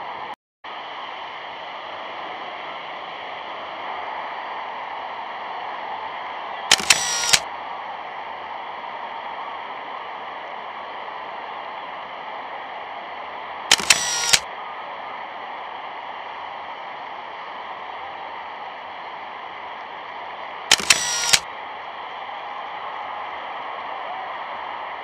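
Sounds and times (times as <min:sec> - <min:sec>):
film soundtrack hiss and hum: 0:00.1 - 0:25.0
sharp clicks and crackle: 0:06.7 - 0:07.4, 0:13.7 - 0:14.4, 0:20.7 - 0:21.4.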